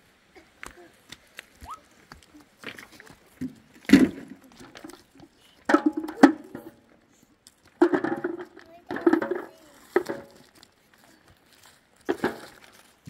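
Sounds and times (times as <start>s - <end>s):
knocks and clatter: 3.4s - 6.9s, 7.6s - 10.6s, 12.1s - 12.7s.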